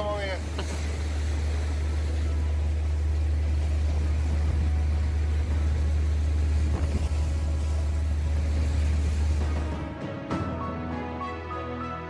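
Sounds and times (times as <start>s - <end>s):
waves splashing against rocks: 0.0s - 9.9s
wind buffeting microphone: 3.1s - 9.8s.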